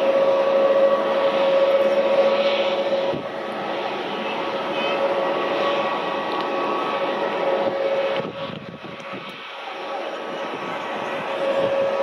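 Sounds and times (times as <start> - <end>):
jet engines whining and roaring: 0.0 - 12.0.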